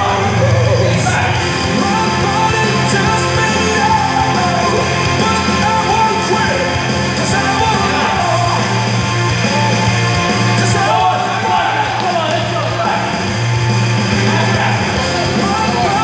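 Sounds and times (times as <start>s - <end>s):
person singing: 0.0s - 8.7s, 14.1s - 16.0s
loud rock music: 0.0s - 16.0s
steady bass line: 0.0s - 16.0s.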